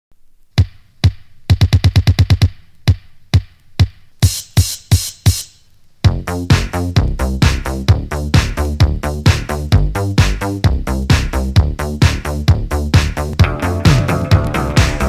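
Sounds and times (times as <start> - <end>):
kick drum hits: 0.6 - 4.4
electronic dance music with synths: 4.2 - 15.0.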